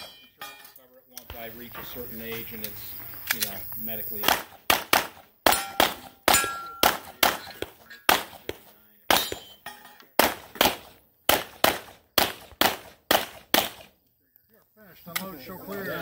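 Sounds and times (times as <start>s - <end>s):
steel targets ringing: 0.0s - 0.8s, 5.5s - 8.2s, 9.1s - 10.0s
handgun shots: 4.2s - 9.6s, 10.2s - 13.9s.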